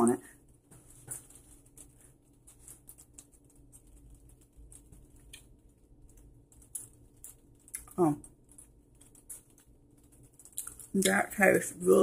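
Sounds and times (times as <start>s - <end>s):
wet chewing mouth clicks: 10.5s - 10.9s.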